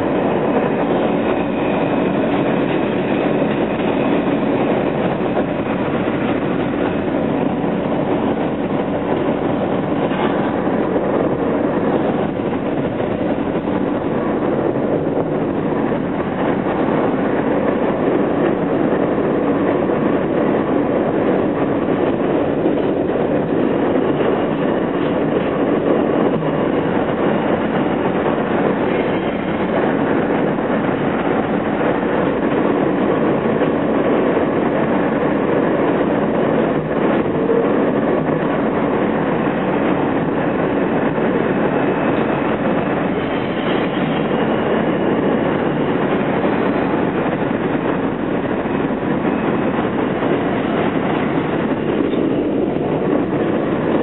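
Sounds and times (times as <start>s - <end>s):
subway train wheels rumbling on rail: 0.0s - 54.0s.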